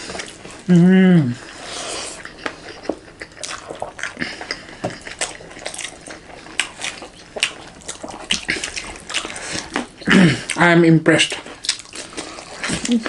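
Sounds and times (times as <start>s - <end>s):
wet chewing and lip smacks: 2.2s - 10.6s, 11.3s - 13.0s.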